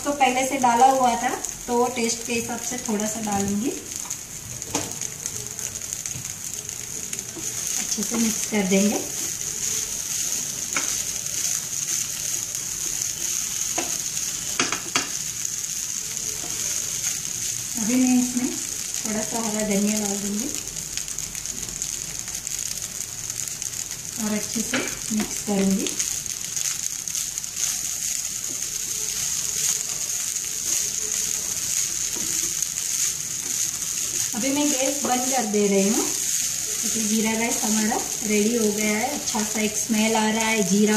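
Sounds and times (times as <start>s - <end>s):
rice sizzling in a pan: 0.0s - 40.9s
spatula stirring rice: 0.6s - 40.8s
spatula tapping pan: 4.0s - 5.2s, 6.0s - 15.2s.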